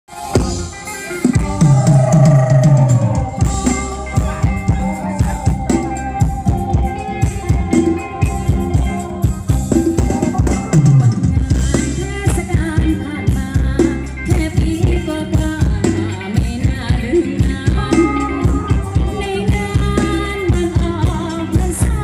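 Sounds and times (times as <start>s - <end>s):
drum kit beat: 0.1s - 22.0s
live dance band playing: 0.1s - 22.0s.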